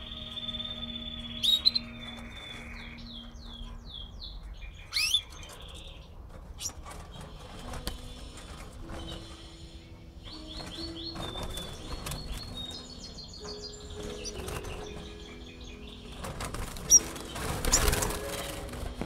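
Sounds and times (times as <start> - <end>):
canaries fluttering wings: 5.0 - 19.0.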